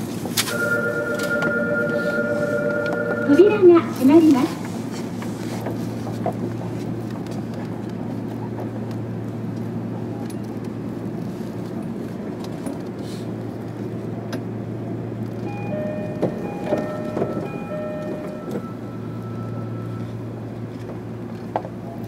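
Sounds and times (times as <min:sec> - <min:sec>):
electric train hum: 0:00.0 - 0:22.0
rail and wheel noise: 0:00.0 - 0:22.0
high-pitched tones: 0:15.5 - 0:20.2.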